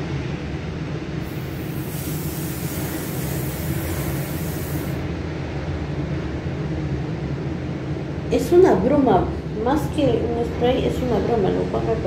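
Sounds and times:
spray bottle hiss: 1.2s - 5.0s.

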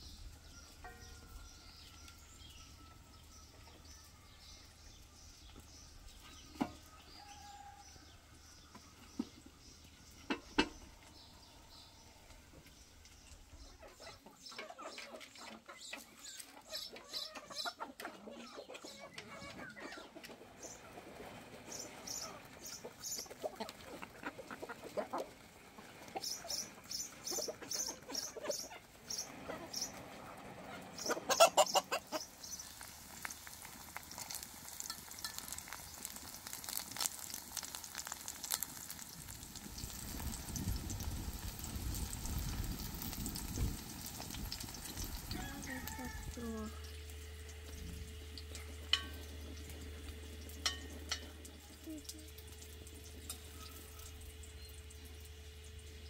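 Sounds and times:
chickens clucking: 5.4s - 36.3s.

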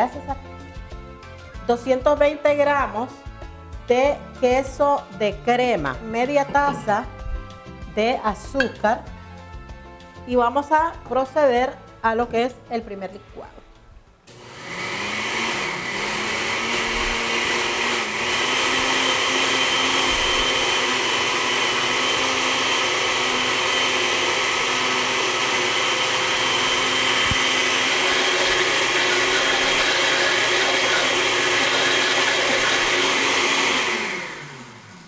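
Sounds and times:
blender running: 14.3s - 35.0s.

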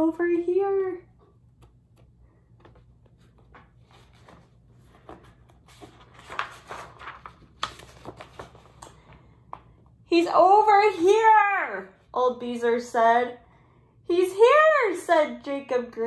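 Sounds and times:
paper pages rustling: 1.6s - 9.8s.

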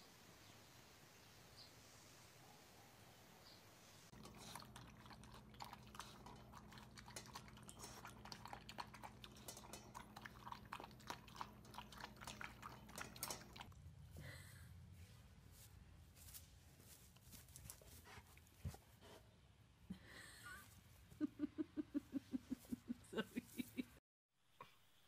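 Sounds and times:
cat chewing crunchy food: 4.1s - 13.7s.

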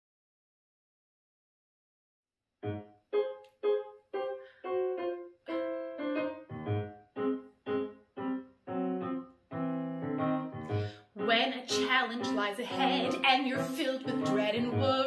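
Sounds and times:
piano playing punchy chords: 2.6s - 15.0s.

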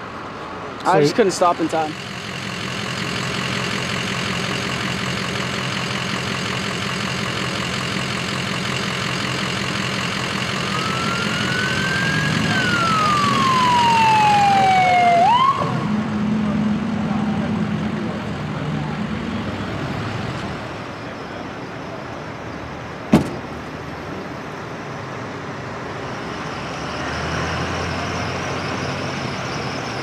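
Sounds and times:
road traffic noise: 0.0s - 30.0s
ambulance siren wailing: 10.2s - 16.1s.

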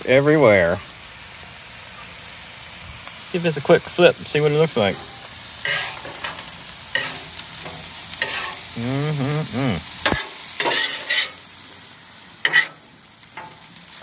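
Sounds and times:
food sizzling on a griddle: 0.0s - 14.0s
metal spatula scraping: 4.8s - 8.7s, 10.1s - 11.5s, 12.4s - 13.7s
brief vocal sound: 8.8s - 10.0s.

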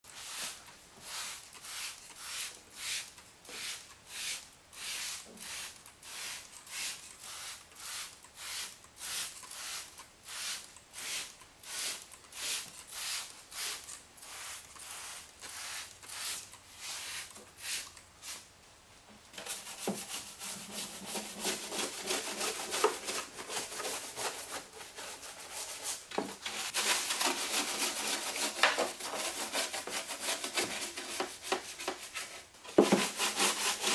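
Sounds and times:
scrub brush scrubbing metal: 19.4s - 33.9s.

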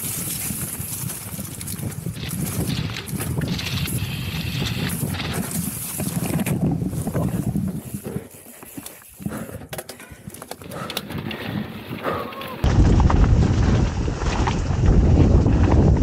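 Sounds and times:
wind noise: 0.0s - 8.4s, 10.2s - 16.0s
tyre noise: 0.0s - 12.7s
bike knocking and rattling: 0.0s - 16.0s.

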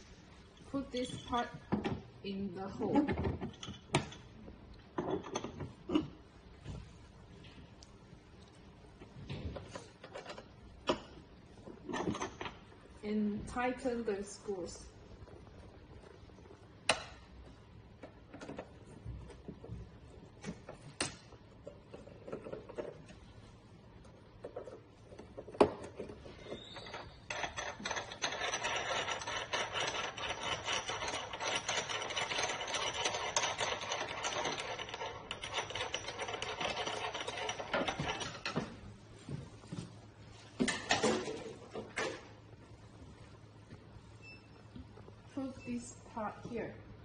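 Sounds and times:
scratchy rasping rub on metal: 26.6s - 38.1s.

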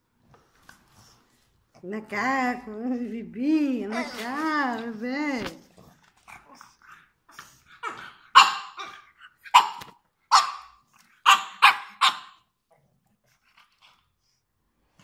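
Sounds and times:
dog barking: 8.3s - 12.5s.

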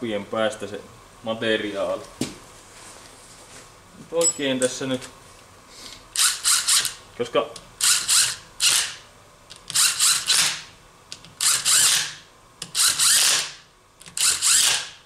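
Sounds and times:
workshop tool bursts: 11.4s - 13.6s, 14.2s - 15.0s.

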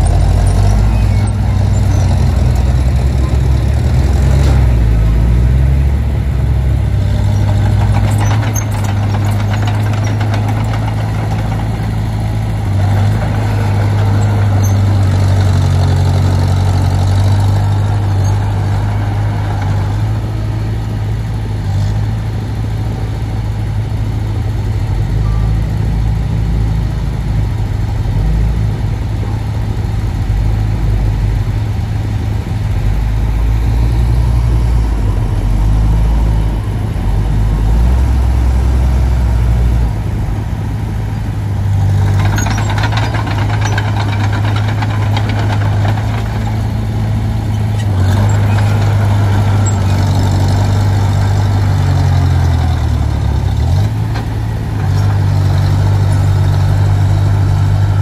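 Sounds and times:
bulldozer diesel engine running: 0.0s - 58.0s
harsh clattering: 7.2s - 19.9s, 42.0s - 53.0s.

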